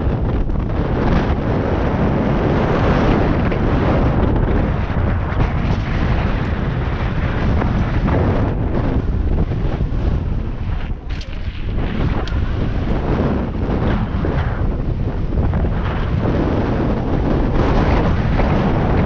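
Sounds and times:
tyres rumbling on dirt trail: 0.0s - 19.0s
wind buffeting microphone: 0.0s - 19.0s
bike knocks and rattles: 10.7s - 13.0s.

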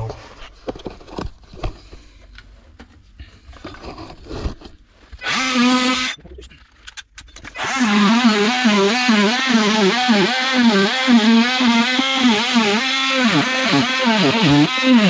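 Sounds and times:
oscillating multi-tool buzzing: 5.2s - 6.2s, 7.6s - 15.0s.

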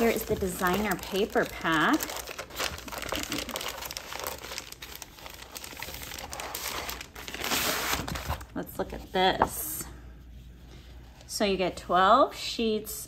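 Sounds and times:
plastic packaging crinkling: 0.0s - 8.6s.

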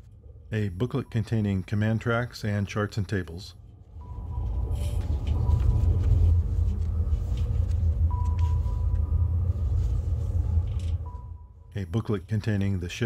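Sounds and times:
deep rumbling drone: 3.6s - 12.0s.

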